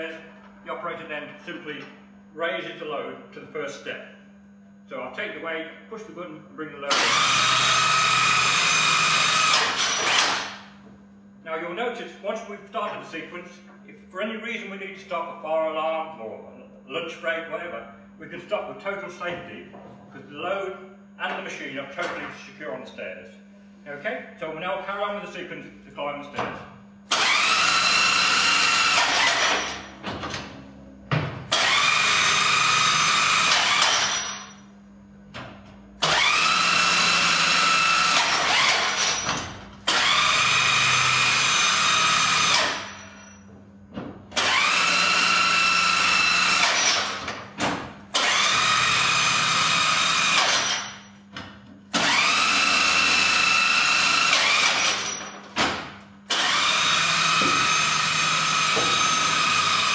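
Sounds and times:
electric lift motor whine: 6.9s - 11.0s, 26.8s - 35.4s, 36.0s - 43.6s, 44.3s - 59.9s.

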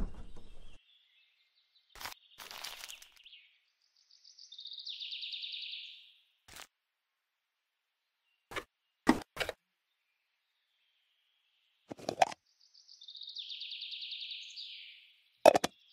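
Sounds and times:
plastic toy pieces rustling: 2.0s - 3.2s.

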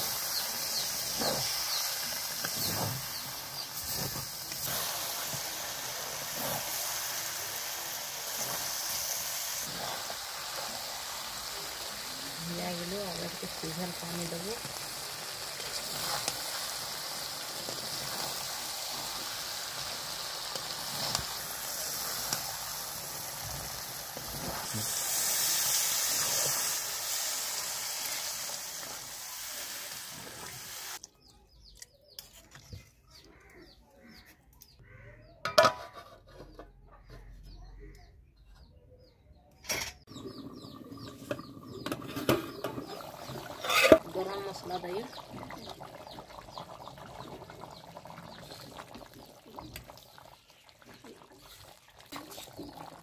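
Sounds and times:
curry sizzling and bubbling: 0.0s - 31.0s, 40.0s - 53.0s
bird chirps: 36.8s - 43.0s.

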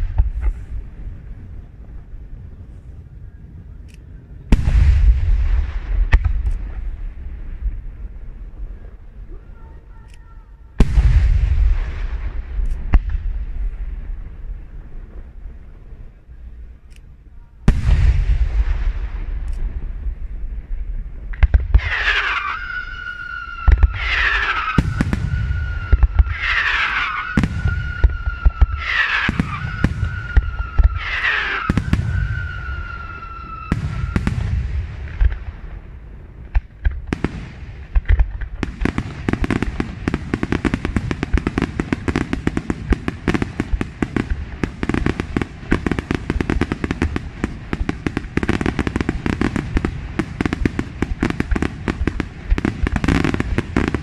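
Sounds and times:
firework crackling: 0.0s - 3.8s, 4.4s - 54.0s
firework shells booming: 4.4s - 9.1s, 10.8s - 16.2s, 17.7s - 54.0s
firework whistles falling: 21.8s - 34.6s.

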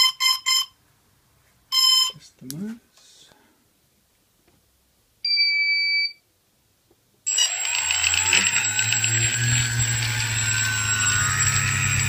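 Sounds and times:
drone motors whining: 7.3s - 12.0s.

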